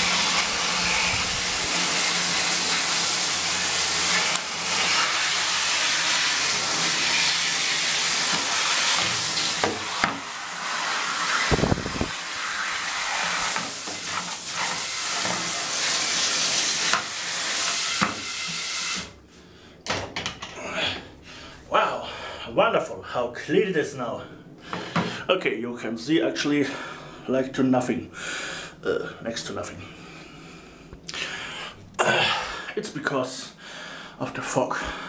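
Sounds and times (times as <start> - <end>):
steam cleaner hissing: 0.0 - 19.2.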